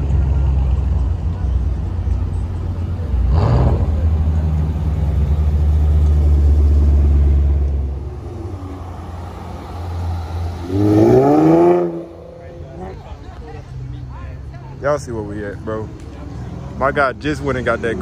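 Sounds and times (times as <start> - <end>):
car engine rumbling past: 0.0 - 14.0.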